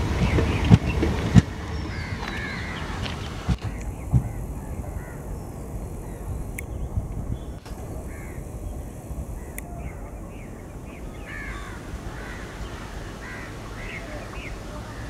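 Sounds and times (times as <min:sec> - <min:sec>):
low steady rumble: 0:00.0 - 0:15.0
crows cawing: 0:01.8 - 0:06.4, 0:07.6 - 0:15.0.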